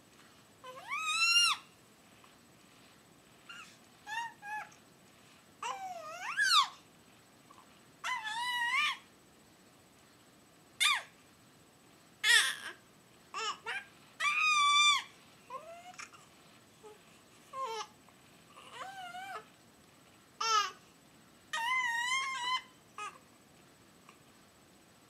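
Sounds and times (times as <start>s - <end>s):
baby squealing: 0.7s - 1.6s, 10.8s - 11.1s, 13.4s - 15.1s, 21.6s - 23.1s.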